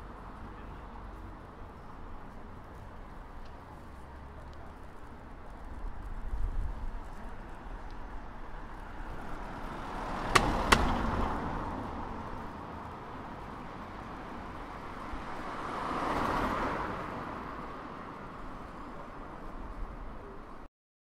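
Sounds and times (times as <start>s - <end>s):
traffic hum: 0.0s - 20.7s
sharp clicks: 10.3s - 11.0s.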